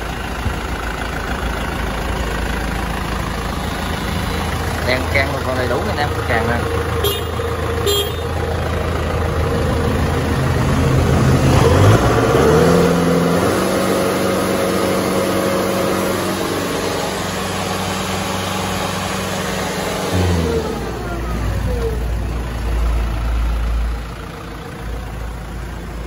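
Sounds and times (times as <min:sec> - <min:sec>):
tractor diesel engine revving: 0:00.0 - 0:26.0.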